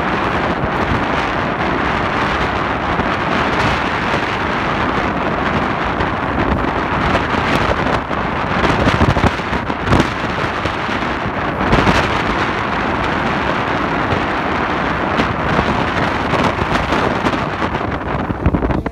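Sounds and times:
crackles and thumps: 0.0s - 18.9s
train coaches rumbling on track: 0.0s - 18.9s
wind buffeting microphone: 0.0s - 18.9s.

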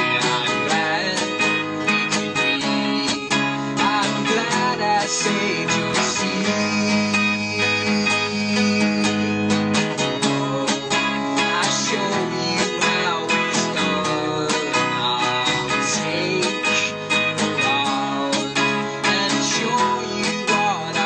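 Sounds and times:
electric bass: 0.0s - 21.0s
electric guitar: 0.0s - 21.0s
man singing: 0.0s - 21.0s
strummed acoustic guitar: 0.0s - 21.0s.

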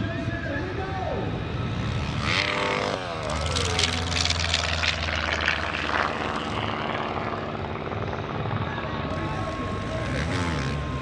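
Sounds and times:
light aircraft engine droning: 0.0s - 11.0s.

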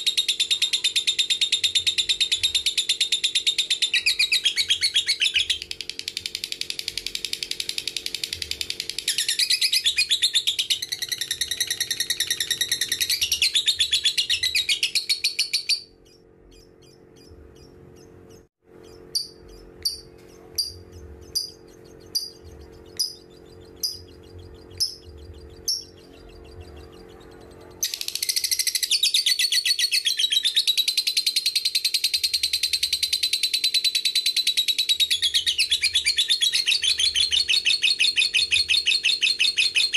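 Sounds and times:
sharp bird chirps: 0.0s - 39.9s
lovebird trilling chatter: 3.2s - 29.0s.

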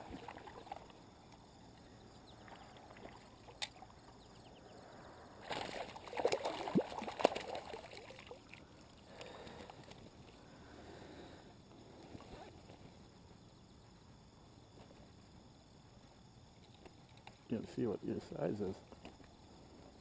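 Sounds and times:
water sloshing: 0.0s - 1.0s, 5.4s - 10.0s
faint lapping water: 0.0s - 12.5s
fish splashing at water surface: 5.4s - 9.6s.

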